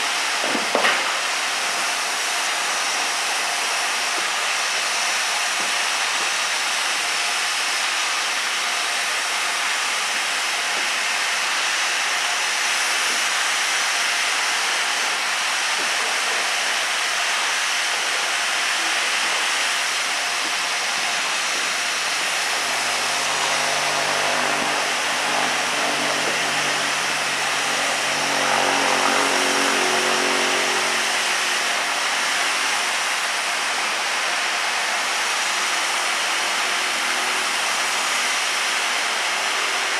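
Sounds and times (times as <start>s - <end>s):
steam hissing from locomotive: 0.0s - 39.9s
low hum: 21.5s - 32.0s.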